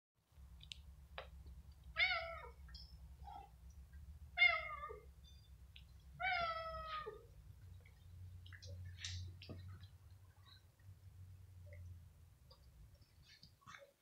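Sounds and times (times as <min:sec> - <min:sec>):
cats meowing: 0:01.9 - 0:02.6, 0:04.3 - 0:05.1, 0:06.2 - 0:07.3.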